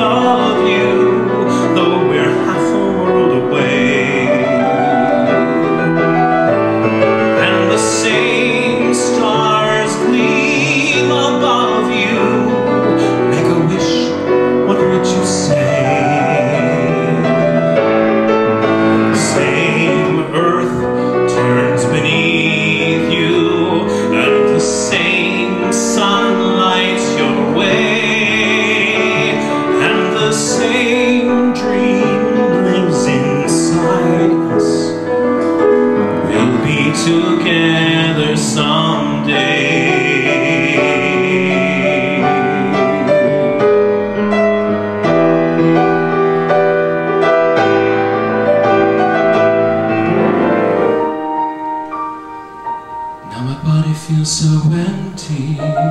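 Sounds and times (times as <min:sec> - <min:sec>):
man singing with vibrato: 0:00.0 - 0:51.4, 0:52.8 - 0:55.9
piano accompaniment: 0:00.0 - 0:55.9.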